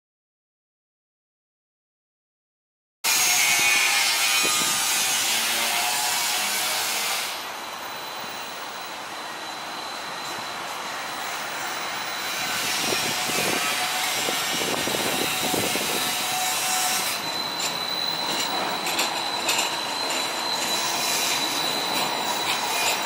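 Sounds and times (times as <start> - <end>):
streetcar wheels squealing: 3.1 - 23.0
wheels clicking over track: 17.4 - 23.0.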